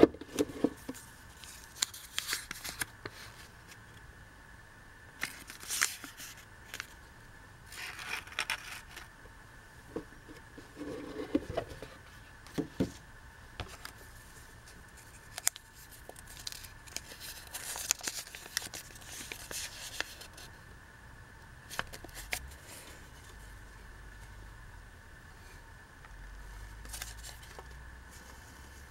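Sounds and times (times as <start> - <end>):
paper crinkling and rustling: 0.0 - 3.8, 5.2 - 7.0, 7.7 - 9.1, 14.7 - 20.5, 26.8 - 28.4.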